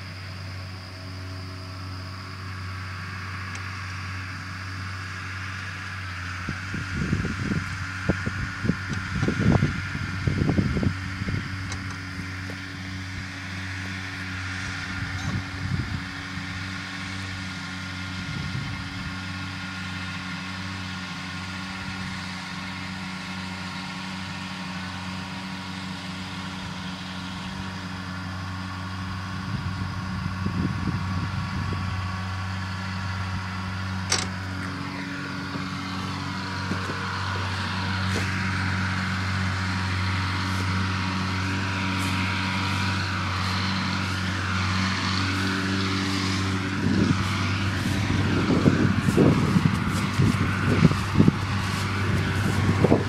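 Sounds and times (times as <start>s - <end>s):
tractor engine running under load: 0.0s - 53.0s
sharp click: 34.1s - 34.4s.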